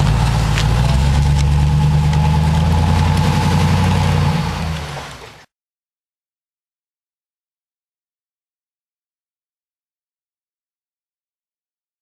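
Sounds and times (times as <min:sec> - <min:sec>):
truck engine driving away: 0:00.0 - 0:05.5.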